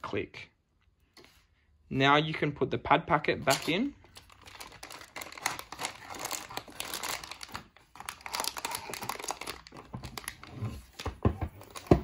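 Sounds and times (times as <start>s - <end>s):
plastic foil packet crinkling: 4.1s - 11.0s.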